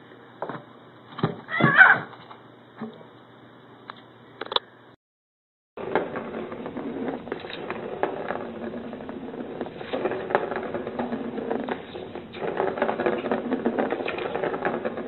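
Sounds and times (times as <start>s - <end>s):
plastic ball rattling on track: 5.8s - 15.0s.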